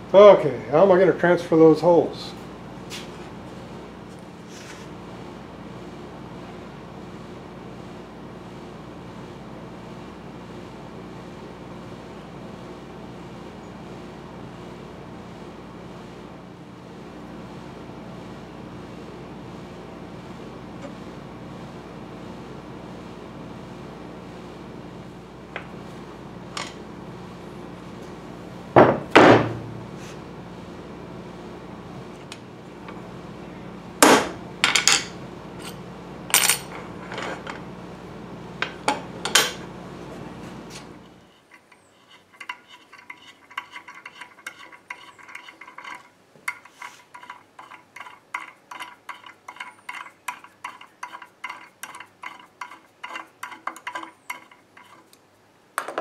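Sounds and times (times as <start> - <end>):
steady hum: 0.0 - 56.0
steel parts clanking on wood: 41.4 - 55.1.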